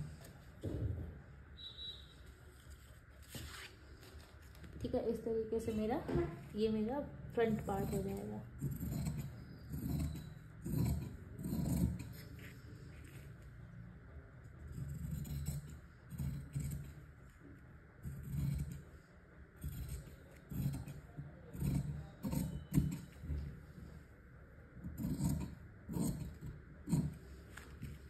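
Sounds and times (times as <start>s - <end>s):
scissors cutting fabric: 7.4s - 13.2s, 14.7s - 17.1s, 18.0s - 18.9s, 19.6s - 23.5s, 24.8s - 28.0s.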